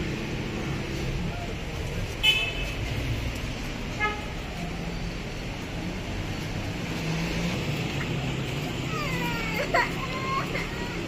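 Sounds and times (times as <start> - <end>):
city street traffic: 0.0 - 11.0
car horn toot: 2.2 - 2.7.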